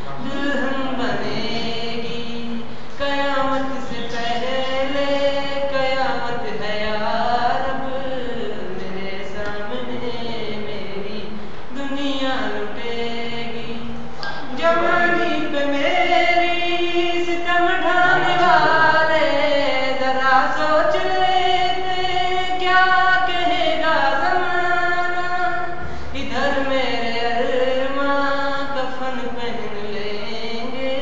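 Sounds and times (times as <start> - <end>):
person singing slow melody: 17.8 - 19.2.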